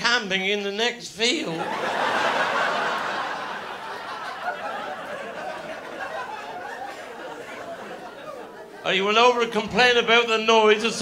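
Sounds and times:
audience laughing: 1.5s - 9.4s.

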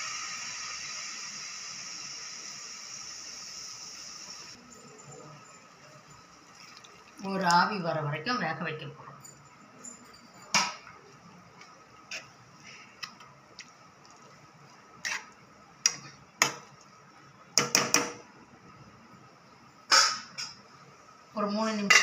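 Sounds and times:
spoon scraping metal pot: 15.0s - 16.0s.

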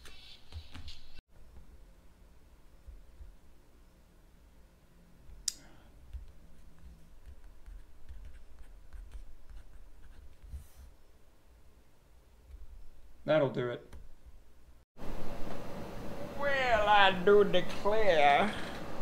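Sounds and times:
pen scratching on paper: 6.2s - 10.9s.

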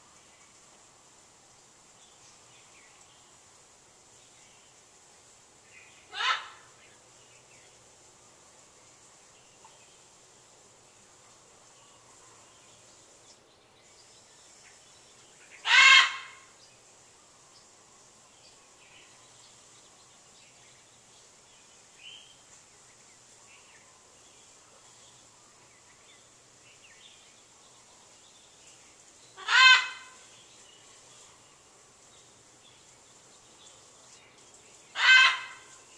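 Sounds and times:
small birds chirping: 0.0s - 35.9s
macaw squawking: 6.1s - 6.6s, 15.7s - 16.4s, 29.4s - 30.1s, 35.0s - 35.6s.

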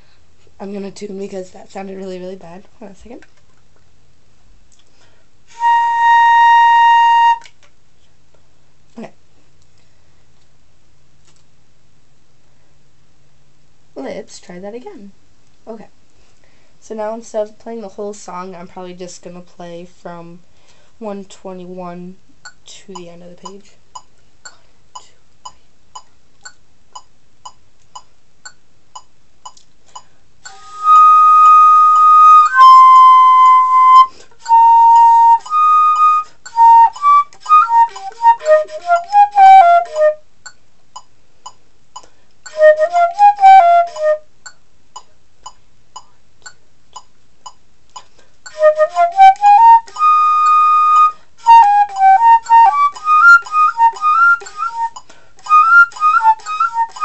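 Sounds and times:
flute playing: 5.5s - 7.6s, 30.5s - 40.3s, 42.5s - 44.3s, 48.5s - 57.0s
metronome ticking: 22.4s - 57.0s.

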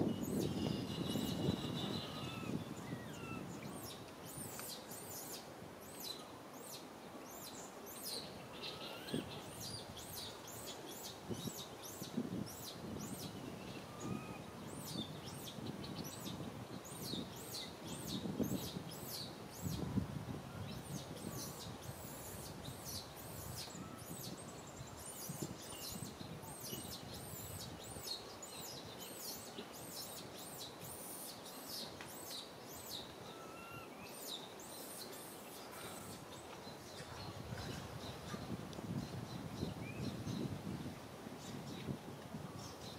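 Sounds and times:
faint rising bird calls: 0.6s - 3.8s, 8.4s - 9.6s, 33.1s - 36.4s
small birds chirping: 20.6s - 42.0s.

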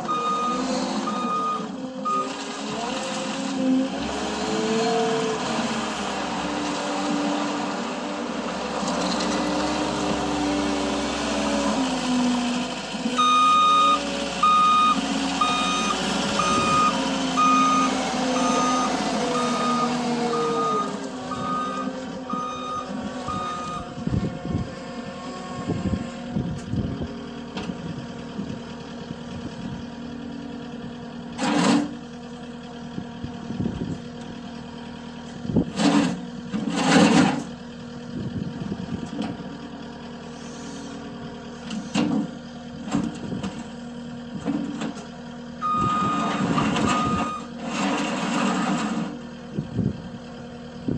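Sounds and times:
reversing alarm beeping: 0.0s - 2.4s, 13.2s - 23.9s, 45.6s - 47.5s
diesel engine running: 0.0s - 50.9s.

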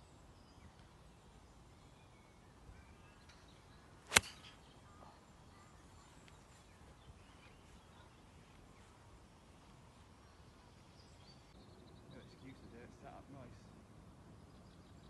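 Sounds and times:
faint birdsong: 0.0s - 15.0s
golf club striking ball: 4.1s - 4.6s.

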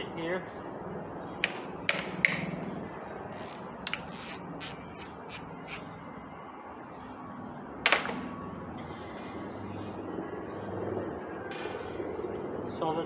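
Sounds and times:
steady low hum: 0.0s - 13.0s
socket wrench ratcheting: 3.3s - 5.9s.

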